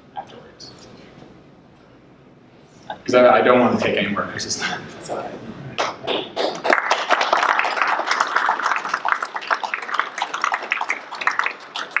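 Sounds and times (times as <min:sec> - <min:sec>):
audience applause: 0:06.1 - 0:12.0.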